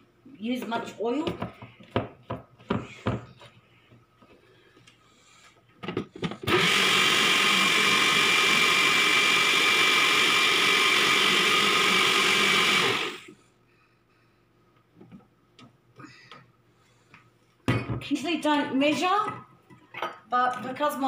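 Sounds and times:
blender motor whirring: 6.4 - 13.4.

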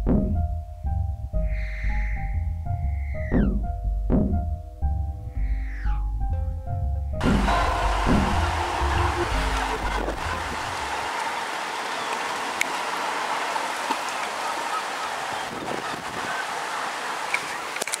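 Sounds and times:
music track: 0.0 - 11.2
rain hiss: 7.2 - 18.0.

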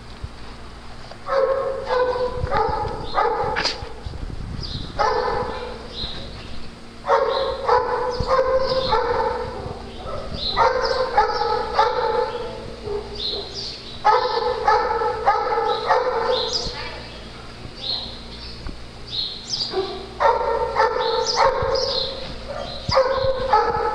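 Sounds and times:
dog barking: 1.3 - 4.0, 5.0 - 5.9, 7.0 - 16.7, 19.7 - 23.9
dog yipping: 1.3 - 4.0, 5.0 - 5.9, 7.1 - 16.7, 19.7 - 23.9.

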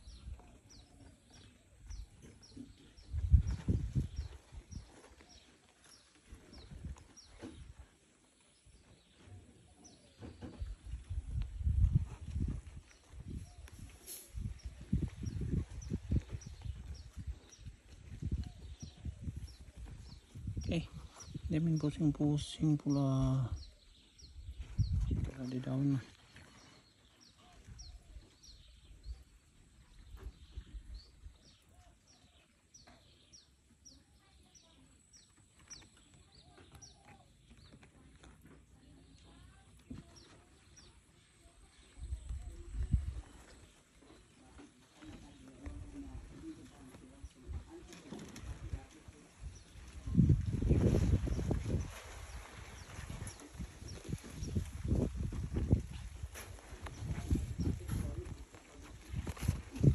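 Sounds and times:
birds chirping: 0.0 - 59.9
microphone rumbling: 1.9 - 4.9, 10.3 - 13.8, 14.4 - 21.8, 23.2 - 25.6, 41.9 - 43.8, 45.3 - 59.9.

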